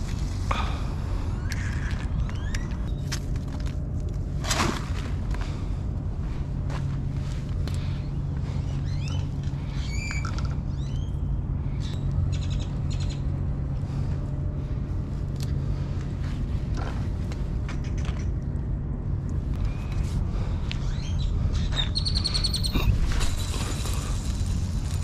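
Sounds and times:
steady low hum: 0.0s - 25.0s
birds chirping: 7.8s - 13.4s, 20.7s - 23.2s.

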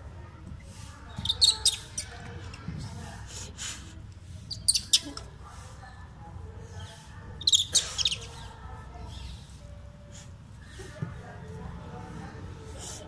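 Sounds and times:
baby monkey squeaking: 1.2s - 2.2s, 4.5s - 5.1s, 7.4s - 8.5s.

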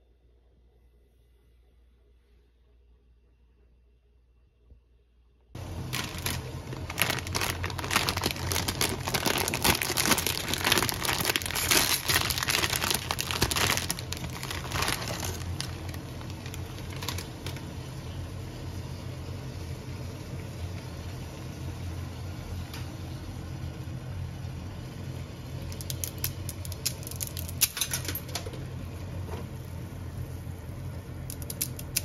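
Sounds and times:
plastic packet crinkling: 5.6s - 17.7s, 25.7s - 27.9s, 31.3s - 32.0s.

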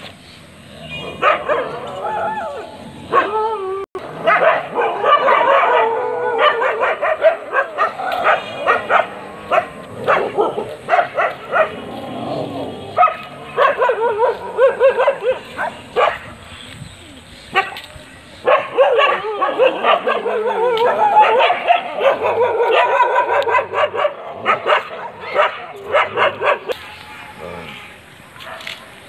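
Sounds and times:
dogs' long wavering cries: 1.0s - 10.7s, 18.4s - 26.7s
dogs barking and yelping: 1.0s - 16.6s, 17.5s - 26.8s.

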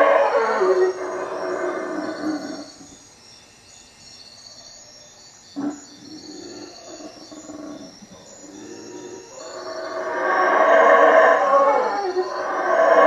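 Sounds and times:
howler monkeys roaring: 0.0s - 3.0s, 5.6s - 13.0s
insects chirping: 0.0s - 13.0s.

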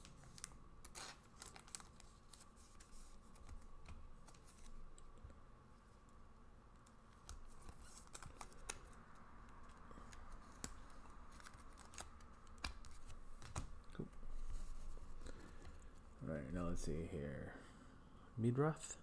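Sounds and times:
trading cards being handled: 0.0s - 5.3s, 6.8s - 16.2s.

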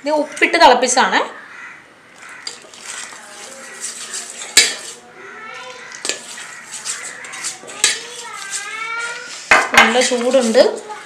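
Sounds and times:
water pouring: 2.2s - 5.0s
spoon clinking on metal pot: 3.8s - 5.0s, 7.8s - 8.0s.

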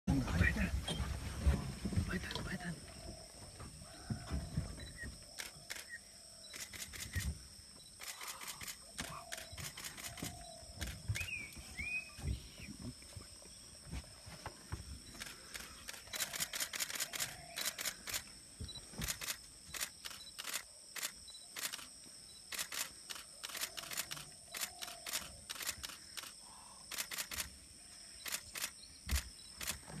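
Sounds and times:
camera shutters clicking: 5.4s - 7.3s, 8.0s - 11.0s, 15.2s - 18.3s, 19.0s - 21.9s, 22.5s - 27.5s.

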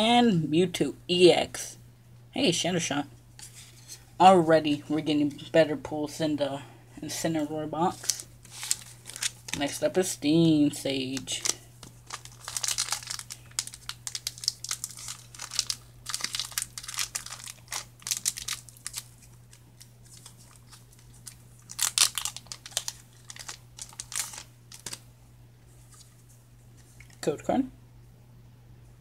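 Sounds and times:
foil wrapper tearing and crinkling: 7.9s - 9.8s, 10.8s - 25.0s.

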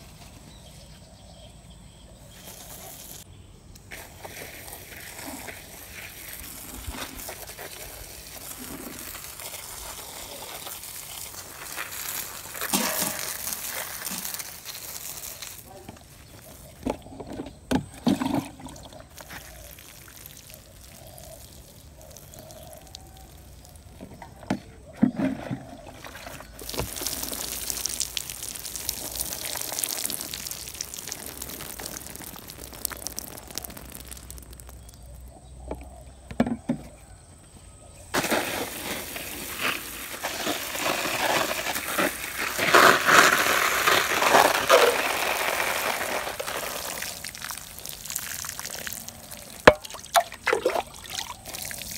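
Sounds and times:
water sprinkling onto plants: 3.9s - 16.8s, 18.8s - 24.1s, 26.4s - 35.4s, 38.2s - 51.9s.

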